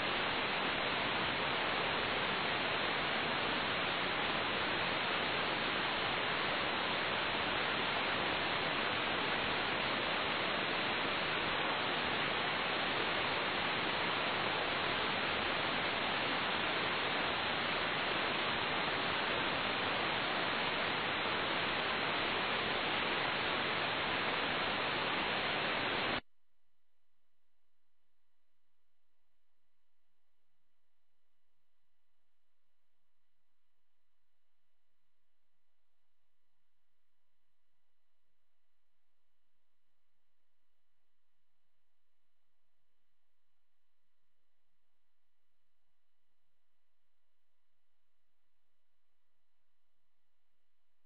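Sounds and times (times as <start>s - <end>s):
radio static hiss: 0.0s - 26.2s.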